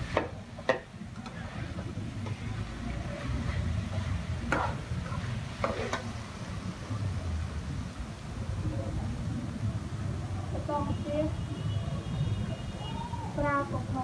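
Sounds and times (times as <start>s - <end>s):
metal spatula scraping a wok: 0.0s - 6.3s.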